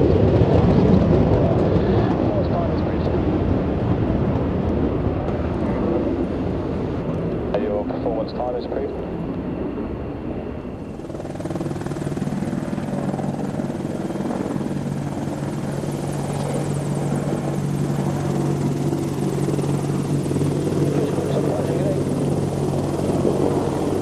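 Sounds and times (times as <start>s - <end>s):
helicopter running: 0.0s - 24.0s.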